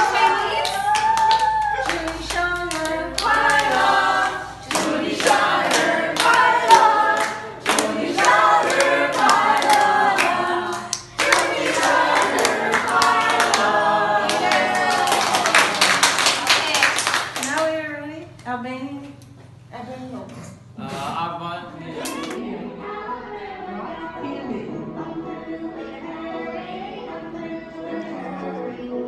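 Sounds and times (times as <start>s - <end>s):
group of people singing: 0.0s - 16.2s, 21.7s - 29.0s
hands clapping: 0.5s - 3.8s, 4.7s - 17.7s.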